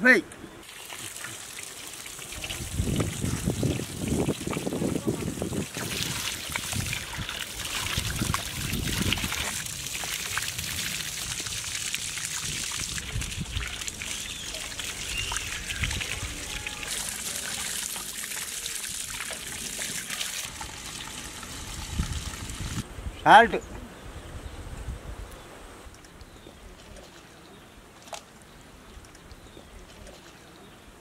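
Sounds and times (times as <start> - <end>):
water pouring and splashing: 0.6 - 22.8.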